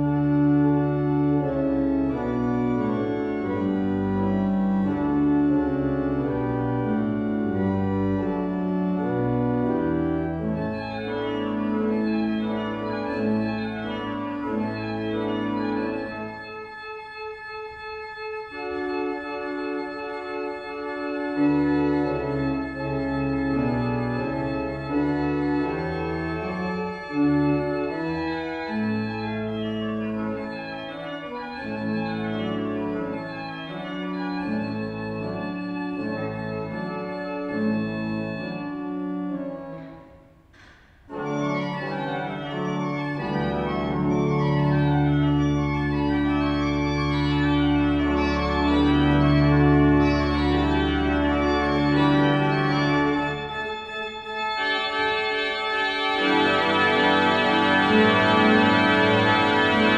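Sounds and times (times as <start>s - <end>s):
pipe organ playing: 0.0s - 59.9s.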